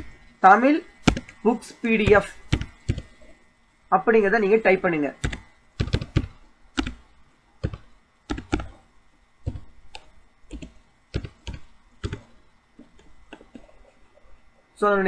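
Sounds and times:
keyboard typing: 1.0 - 1.4, 2.0 - 3.3, 5.2 - 8.8, 9.4 - 14.3.

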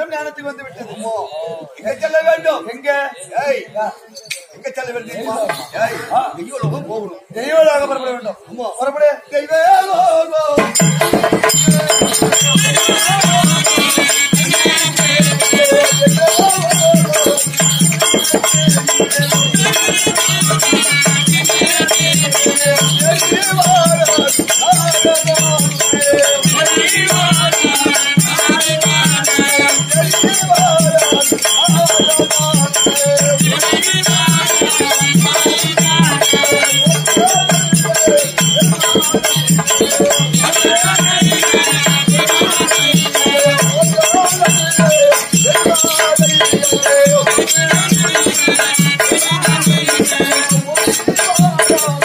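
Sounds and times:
drum steady beat: 10.6 - 52.0
jingling ankle bells: 10.7 - 52.0.

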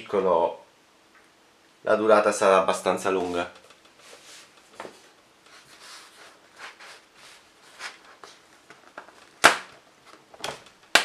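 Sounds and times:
paper rustling: 4.0 - 9.4.

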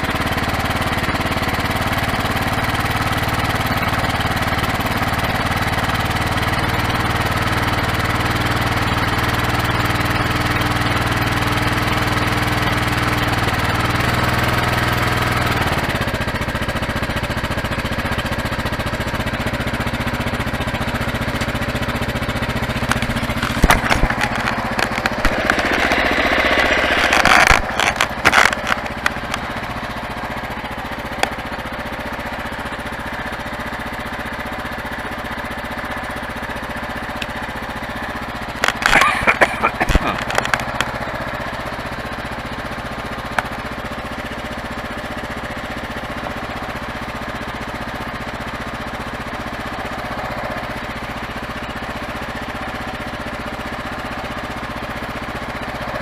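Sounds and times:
motorcycle engine running: 0.0 - 56.0
sharp knocks and rattles: 22.7 - 29.6, 38.6 - 41.1
rush of noise: 25.0 - 28.3.

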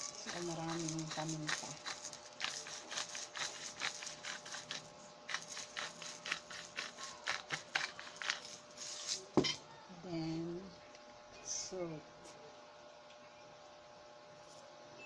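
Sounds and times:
pepper shaker shaking: 0.0 - 9.4.

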